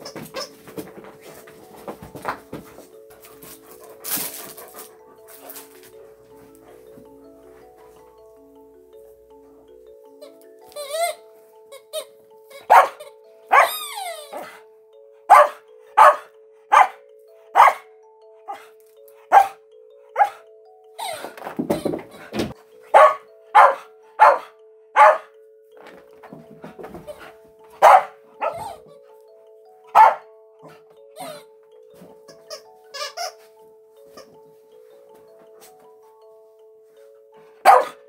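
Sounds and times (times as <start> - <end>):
soft background music: 0.0 - 38.0
dog barking: 12.7 - 14.6, 15.3 - 17.0, 17.6 - 17.9, 19.3 - 19.6, 20.2 - 20.4, 22.9 - 25.3, 27.8 - 28.8, 29.9 - 30.3, 37.6 - 38.0.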